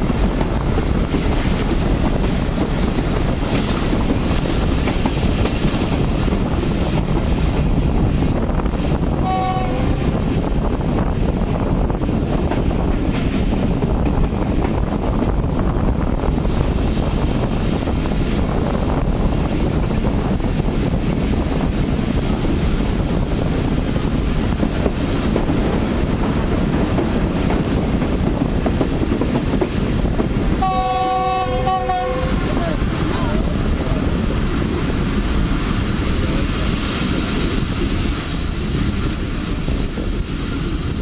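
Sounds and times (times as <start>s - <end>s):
train running on rails: 0.0s - 41.0s
train horn blast: 9.2s - 10.2s, 30.6s - 32.6s.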